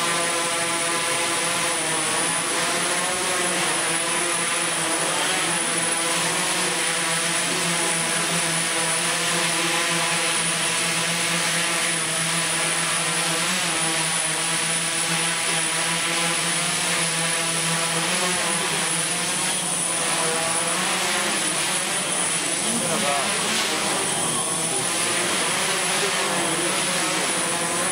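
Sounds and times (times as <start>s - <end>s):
drone propellers humming: 0.0s - 27.9s.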